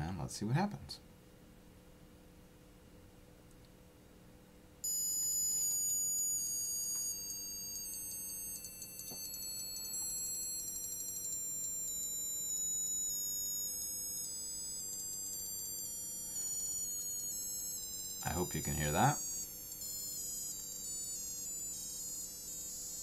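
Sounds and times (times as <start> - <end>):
shrill electronic tone stepping down: 4.9 - 23.0.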